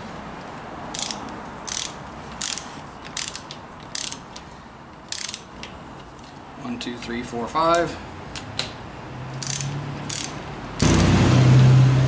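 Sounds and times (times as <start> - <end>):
ratchet wrench clicking: 0.9 - 4.4, 5.1 - 5.7, 9.4 - 11.0.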